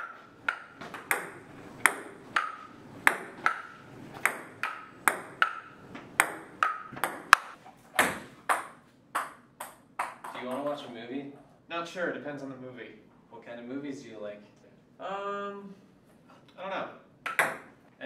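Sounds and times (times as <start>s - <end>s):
table tennis ball clicking: 0.0s - 10.6s, 17.2s - 17.7s.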